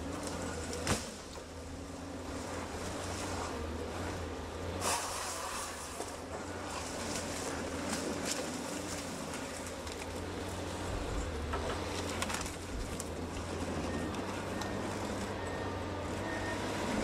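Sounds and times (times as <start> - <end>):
diesel engine and hydraulics: 0.0 - 17.0
branches snapping: 4.8 - 10.6, 11.4 - 15.3.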